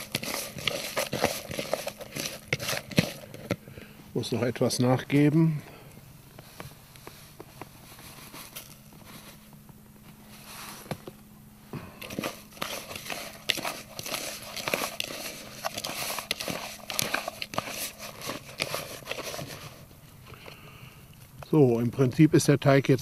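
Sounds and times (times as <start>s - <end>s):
hand kneading wet dough: 0.0s - 4.7s, 11.8s - 19.9s.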